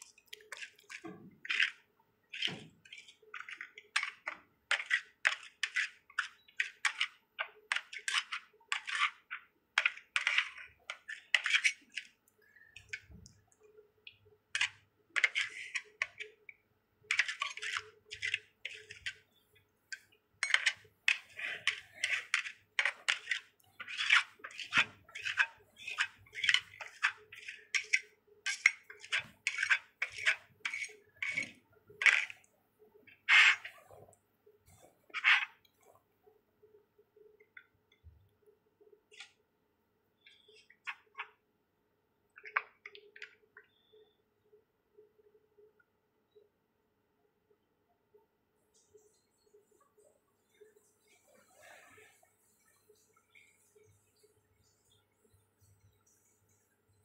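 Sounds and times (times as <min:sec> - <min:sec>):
metal spatulas scraping ice cream: 0:00.2 - 0:13.2, 0:14.6 - 0:16.4, 0:17.1 - 0:32.5, 0:33.1 - 0:34.1.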